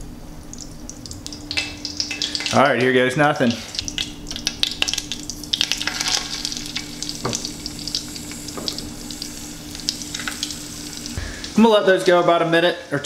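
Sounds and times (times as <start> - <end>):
fish sizzling in a skillet: 1.4 - 2.6, 3.7 - 11.6
oil popping: 3.7 - 11.6
low hum: 3.8 - 11.8.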